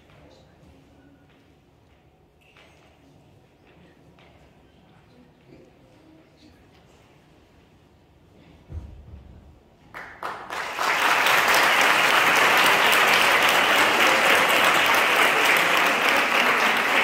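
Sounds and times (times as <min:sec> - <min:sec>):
audience applauding: 0:10.0 - 0:17.0.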